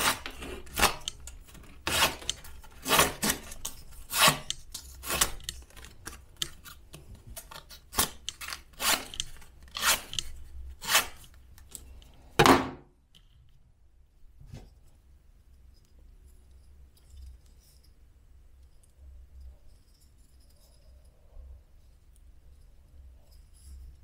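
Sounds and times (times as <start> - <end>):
knife slicing paper: 0.0 - 5.5, 7.8 - 10.2, 10.8 - 11.2.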